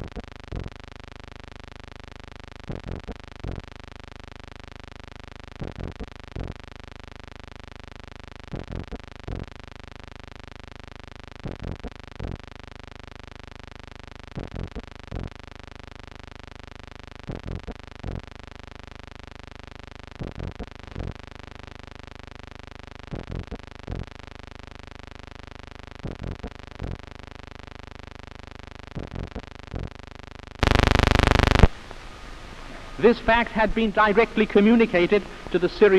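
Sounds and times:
film soundtrack hiss and hum: 0:30.6 - 0:35.9
short pulses: 0:30.6 - 0:35.9.

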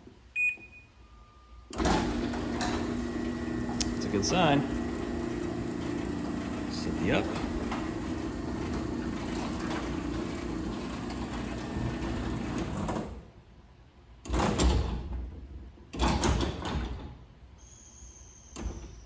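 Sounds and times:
garage door opener running: 0:01.7 - 0:13.2.

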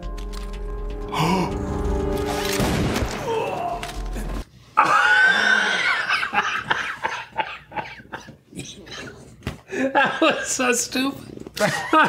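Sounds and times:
action film music with hits: 0:00.0 - 0:04.4
man laughing loudly: 0:04.8 - 0:08.3, 0:11.6 - 0:12.0.

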